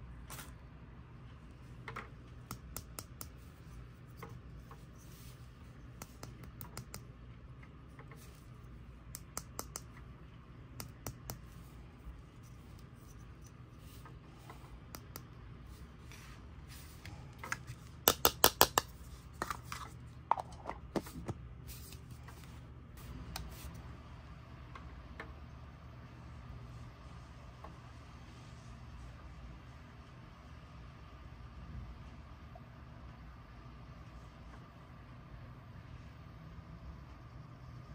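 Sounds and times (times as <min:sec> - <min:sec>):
low steady hum: 0:00.0 - 0:37.9
plastic toy clicks and taps: 0:18.1 - 0:18.9.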